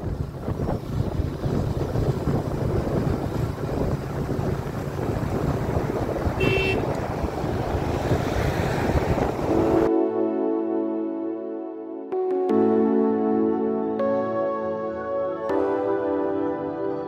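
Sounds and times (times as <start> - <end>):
vehicle road and engine noise: 0.0 - 9.9
wind buffeting microphone: 0.0 - 9.9
short horn beep: 6.4 - 6.8
music: 9.5 - 17.0.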